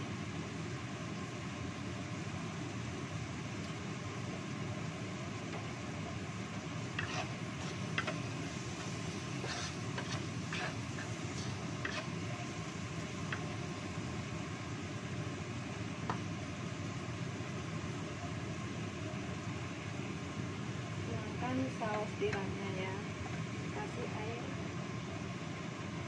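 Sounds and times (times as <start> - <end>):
spatula scraping a wok: 6.9 - 12.6.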